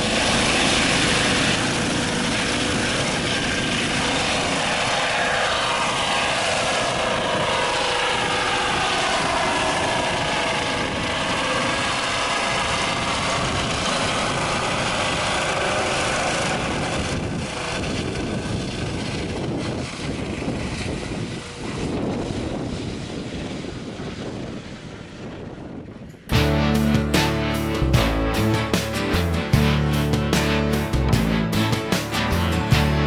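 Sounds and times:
whining tones gliding down: 0.0s - 25.4s
helicopter rotor and turbine: 0.0s - 33.0s.

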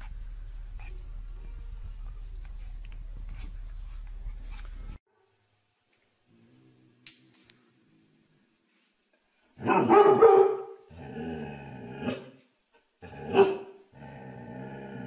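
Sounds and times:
dog barking: 9.6s - 10.8s, 13.3s - 13.7s.

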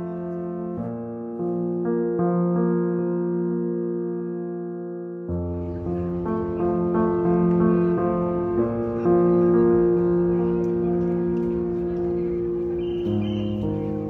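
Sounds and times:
instrumental background music: 3.7s - 14.0s.

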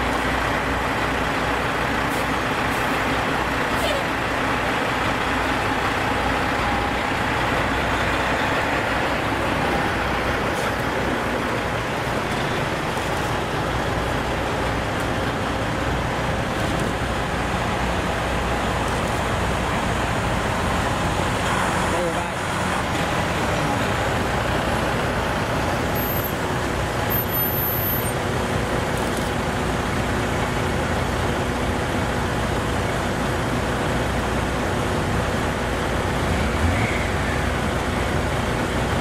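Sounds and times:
heavy trucks driving past: 0.0s - 39.0s
truck passing close by: 34.4s - 39.0s.

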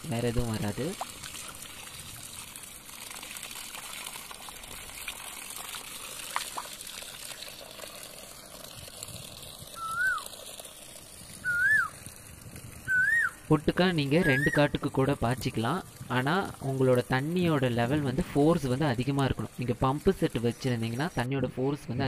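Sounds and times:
water gushing from valve: 0.0s - 22.0s
whistled note: 9.8s - 10.2s, 11.4s - 11.9s, 12.9s - 13.4s.

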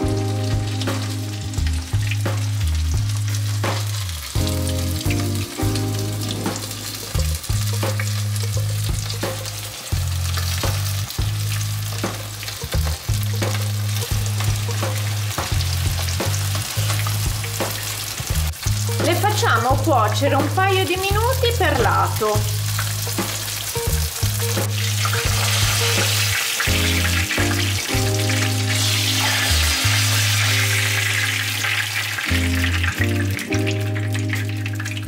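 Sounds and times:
background music with bass line: 0.0s - 35.0s
oil sizzling and crackling: 0.0s - 35.0s.

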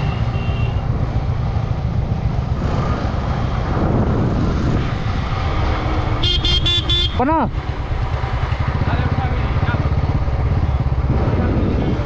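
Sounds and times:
motorcycle engine running: 0.0s - 12.0s
wind rumbling on microphone: 0.8s - 6.2s, 9.9s - 12.0s.

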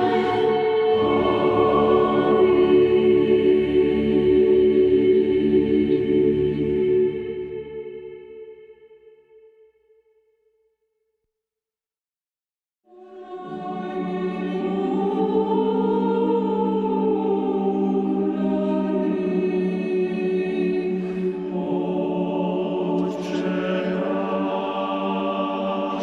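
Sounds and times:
choir singing sustained chords: 0.0s - 9.9s, 12.9s - 26.0s.

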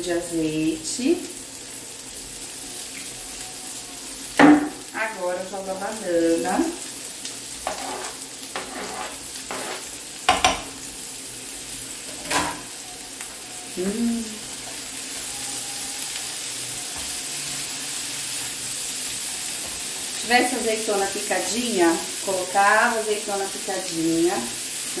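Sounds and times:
food sizzling in a pan: 0.0s - 25.0s
food scraped off cutting board: 7.6s - 9.9s
utensils clicking on board and pan: 7.7s - 10.8s.

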